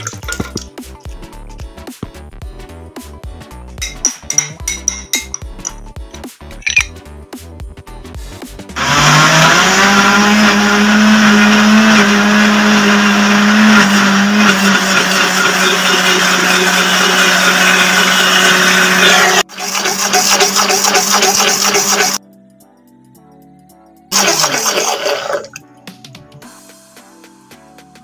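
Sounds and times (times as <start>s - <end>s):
blender motor running: 8.8s - 22.2s, 24.1s - 25.5s.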